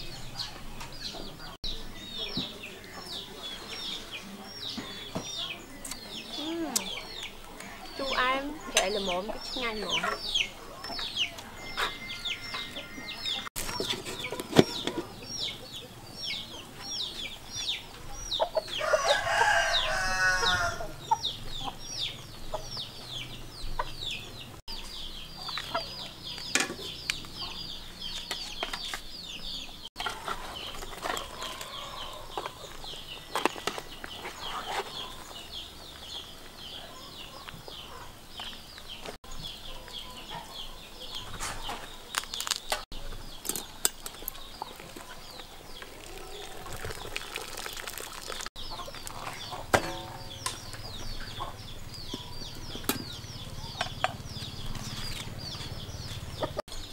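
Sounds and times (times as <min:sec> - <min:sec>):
chicks peeping: 0:00.2 - 0:43.4, 0:44.2 - 0:56.9
rooster crowing: 0:18.8 - 0:21.0
pots and utensils knocking: 0:49.7 - 0:50.6.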